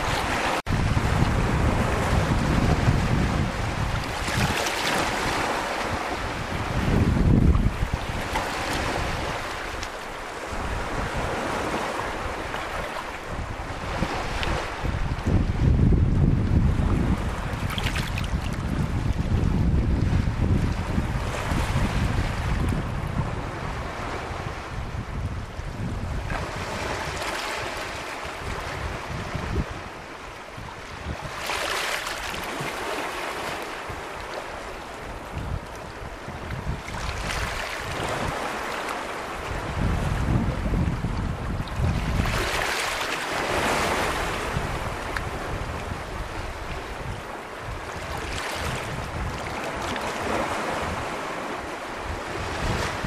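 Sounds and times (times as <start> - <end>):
waves washing over pebbles: 0.0 - 14.9
wind rumbling on microphone: 0.0 - 53.0.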